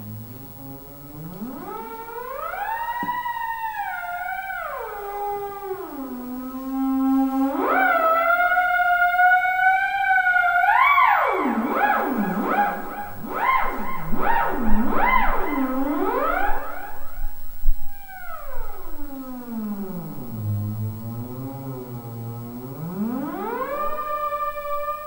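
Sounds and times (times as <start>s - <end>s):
theremin gliding tone: 0.0s - 25.0s
steady low tone: 11.6s - 25.0s.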